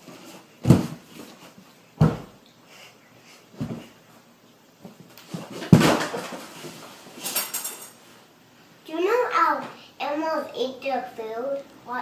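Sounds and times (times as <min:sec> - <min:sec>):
dull thumps: 0:00.6 - 0:01.3, 0:02.0 - 0:02.4.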